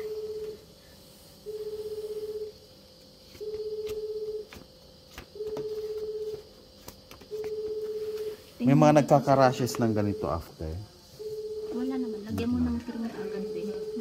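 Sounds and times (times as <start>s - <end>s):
telephone ringing tone beeps: 1.5s - 2.6s, 3.4s - 4.5s, 7.3s - 8.4s, 9.9s - 10.5s, 11.2s - 14.0s.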